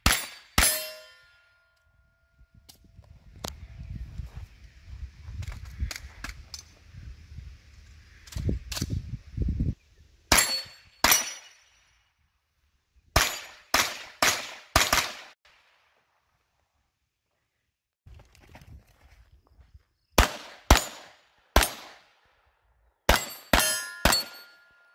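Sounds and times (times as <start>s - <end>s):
carbine gunshots: 13.2s - 15.4s, 20.2s - 22.0s, 23.1s - 24.5s.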